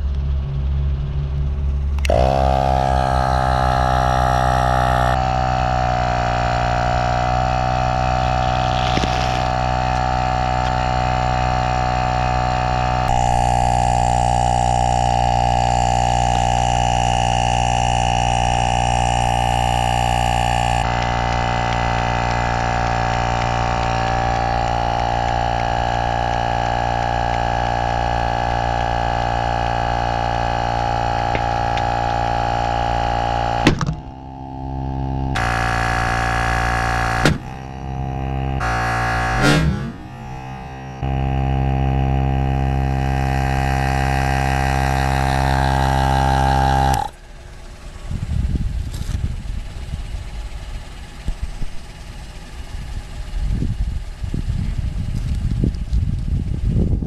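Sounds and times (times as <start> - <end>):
air compressor humming: 1.5 - 57.0
compressor switch click: 33.6 - 34.1, 37.2 - 37.8.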